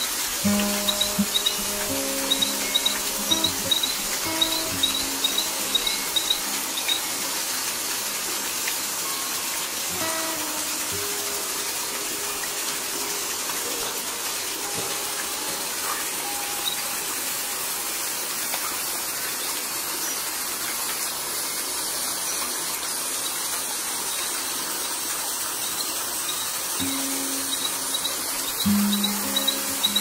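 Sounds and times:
waterfall rushing onto rocks: 0.0s - 30.0s.

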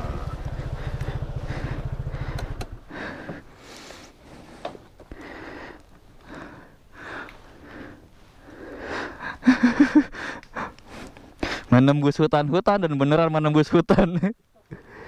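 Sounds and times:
person panting: 0.5s - 11.7s, 14.8s - 15.0s.

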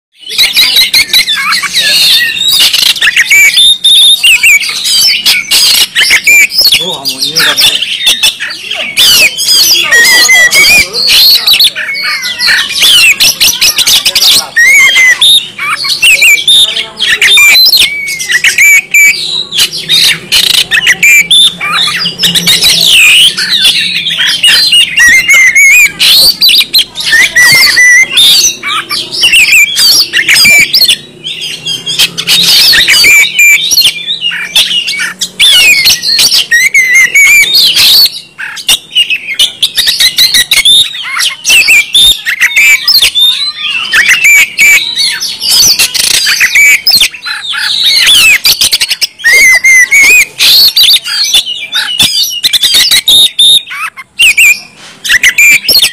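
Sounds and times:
bird singing whistles and trills: 0.2s - 55.9s.

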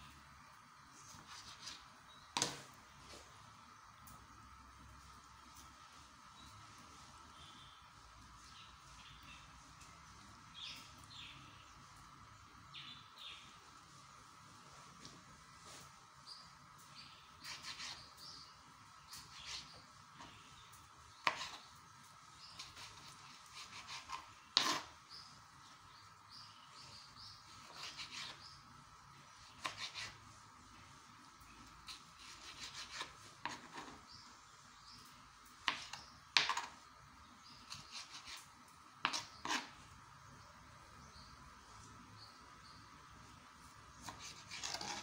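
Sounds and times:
knife cutting on cutting board: 22.6s - 24.9s, 29.6s - 30.2s, 31.9s - 34.0s, 39.0s - 39.8s, 44.0s - 45.0s.

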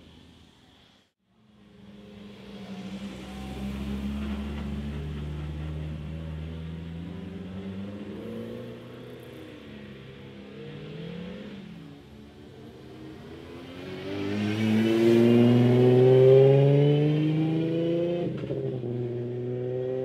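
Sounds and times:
rally car engine accelerating past: 2.0s - 12.1s, 12.9s - 20.0s.

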